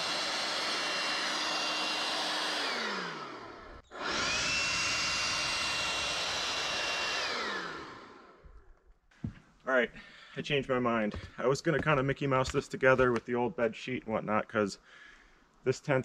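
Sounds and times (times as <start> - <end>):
electric fan spinning and whining: 0.0 - 8.6.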